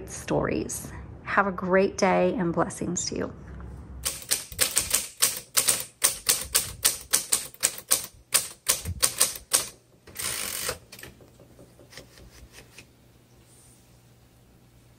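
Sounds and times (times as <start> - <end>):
typewriter carriage return: 4.0 - 12.9
typewriter typing: 4.0 - 12.9.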